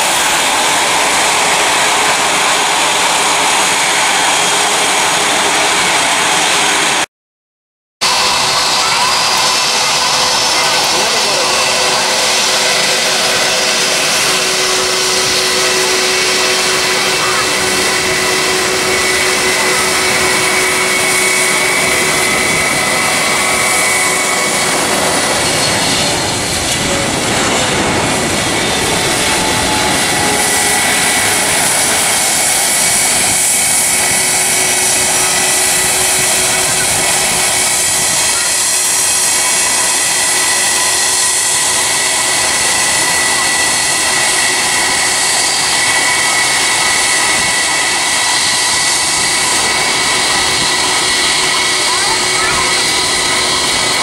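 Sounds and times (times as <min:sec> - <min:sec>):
jet engines whining overhead: 0:00.0 - 0:07.1, 0:08.0 - 0:54.0.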